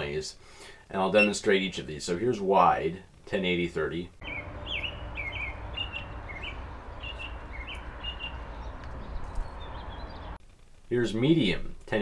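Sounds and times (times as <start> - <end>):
small birds chirping: 4.2 - 10.4
steady low rumble: 4.2 - 10.9.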